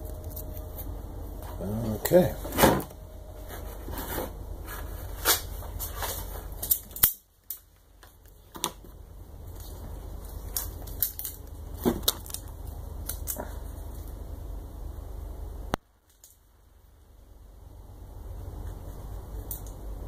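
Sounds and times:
low steady hum: 0:00.0 - 0:20.0
clicks and crinkles of packaging: 0:09.5 - 0:14.2.

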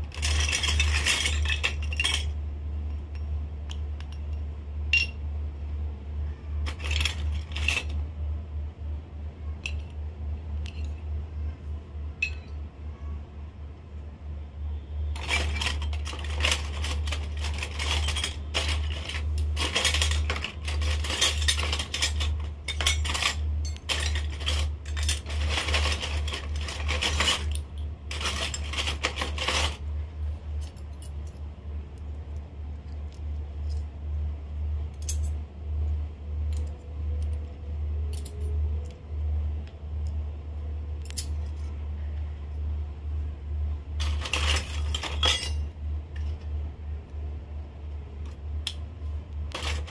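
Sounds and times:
toy metal pots clinking: 0:00.0 - 0:02.4, 0:06.6 - 0:08.0, 0:15.2 - 0:29.8, 0:44.0 - 0:45.6
steady low hum: 0:00.0 - 0:49.9.

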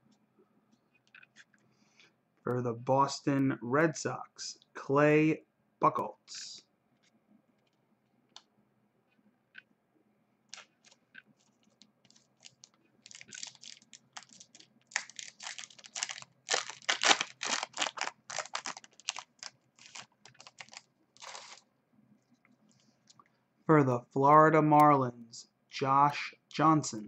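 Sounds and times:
foil wrapper tearing and crinkling: 0:12.1 - 0:21.6.

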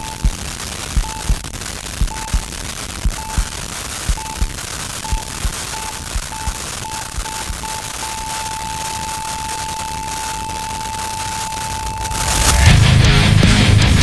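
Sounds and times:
electronic beep speeding up: 0:00.0 - 0:00.4, 0:01.0 - 0:01.4, 0:02.0 - 0:02.5, 0:03.1 - 0:03.5, 0:04.1 - 0:12.7
low heartbeat-like thumps: 0:00.0 - 0:00.4, 0:01.0 - 0:01.4, 0:02.0 - 0:03.5, 0:04.1 - 0:04.5, 0:05.1 - 0:06.6
steady hiss: 0:00.0 - 0:12.8.

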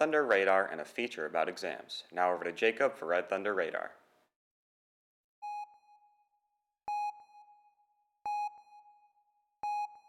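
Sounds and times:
electronic sonar ping: 0:05.4 - 0:10.0.

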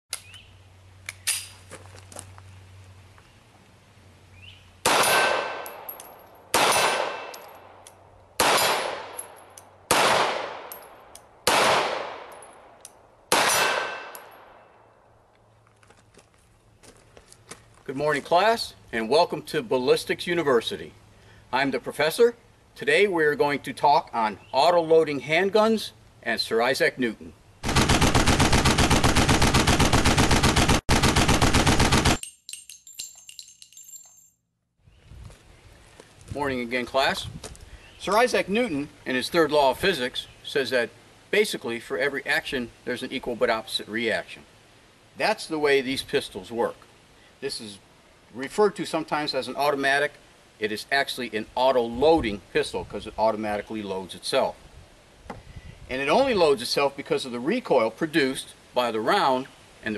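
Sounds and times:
pistol shots echoing: 0:04.8 - 0:05.9, 0:06.5 - 0:07.4, 0:08.4 - 0:09.2, 0:09.9 - 0:10.8, 0:11.4 - 0:12.4, 0:13.3 - 0:14.6
rapid automatic gunfire: 0:27.6 - 0:32.2
ringing metallic clinks: 0:32.2 - 0:34.5.

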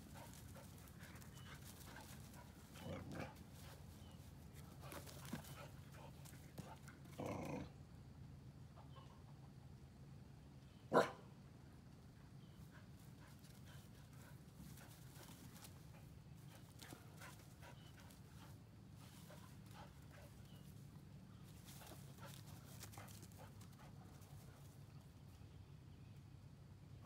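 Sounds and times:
paws and hooves rustling straw: 0:00.0 - 0:06.9, 0:12.8 - 0:25.0
low background hum: 0:00.0 - 0:27.0.

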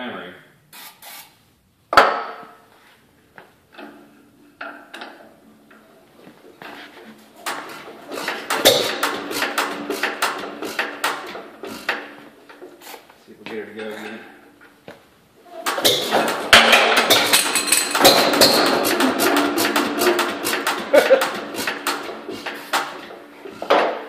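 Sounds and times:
stationary engine clicking and knocking: 0:07.4 - 0:12.2, 0:15.7 - 0:23.9.

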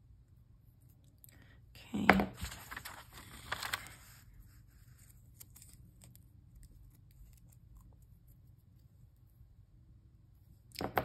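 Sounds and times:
tape rolls and paper rustling: 0:02.4 - 0:04.2.

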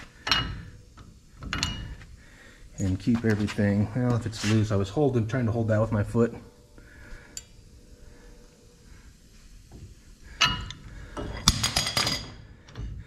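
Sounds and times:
metal wrench clanking: 0:00.2 - 0:02.0, 0:10.4 - 0:13.0.

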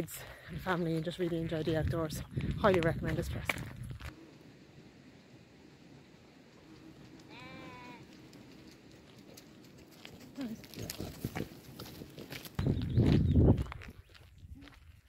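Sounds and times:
sheep bleating: 0:07.2 - 0:08.2.

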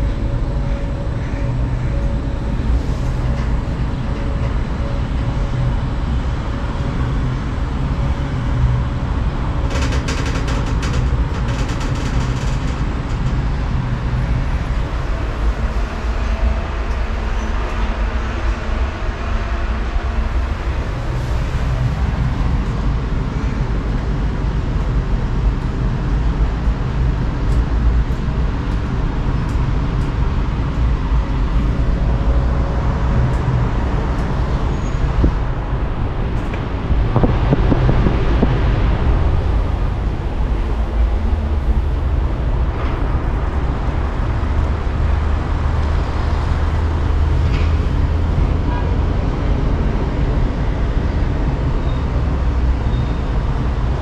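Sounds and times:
constant wash of noise: 0:00.0 - 0:54.0
vehicle engine rumbling: 0:20.0 - 0:54.0.

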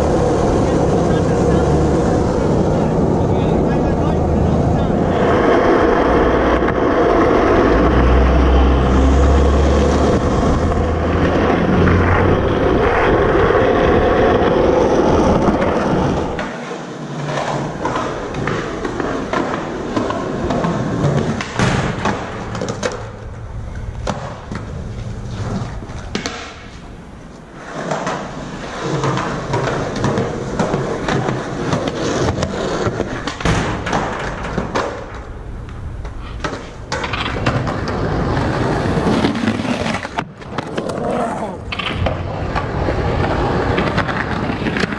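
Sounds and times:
skateboard wheels rolling: 0:00.0 - 0:44.9
skateboard clacks and thuds: 0:09.8 - 0:27.0, 0:27.6 - 0:44.9.

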